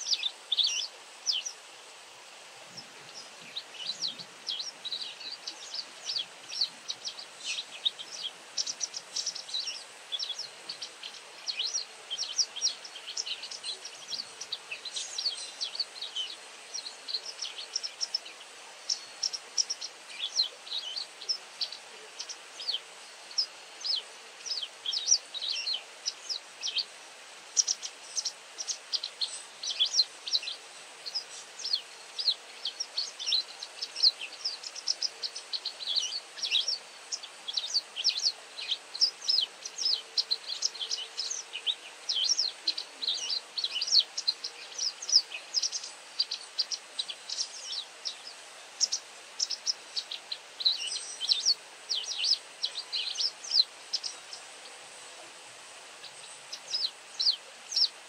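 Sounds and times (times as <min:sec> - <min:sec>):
wagtail chirping: 0:27.5 - 0:54.5, 0:56.0 - 0:58.0.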